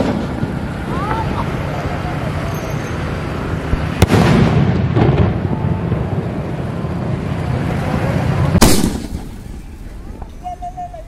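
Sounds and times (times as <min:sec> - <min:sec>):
rushing rumble: 0:00.0 - 0:11.0
firework shell bang: 0:08.6 - 0:09.8.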